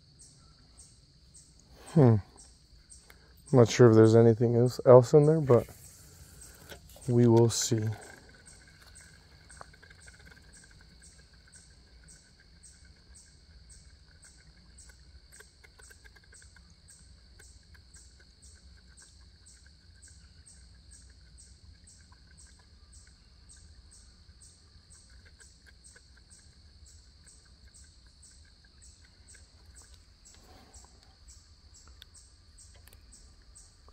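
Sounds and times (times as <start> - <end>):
high-pitched insect trill: 0.0 - 33.9
insect chirping: 0.0 - 33.9.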